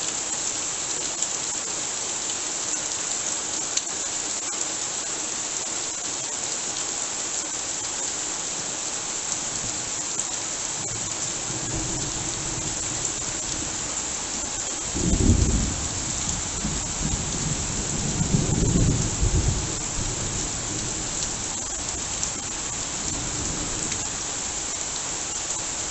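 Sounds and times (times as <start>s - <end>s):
heavy rain on leaves: 0.0s - 25.9s
thunder rumbling: 14.9s - 24.1s.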